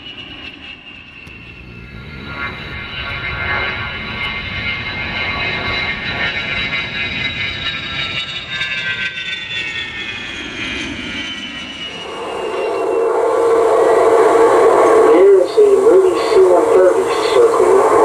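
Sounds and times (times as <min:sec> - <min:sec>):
jet engines whining: 0:00.0 - 0:18.0
rushing jet noise: 0:11.9 - 0:18.0.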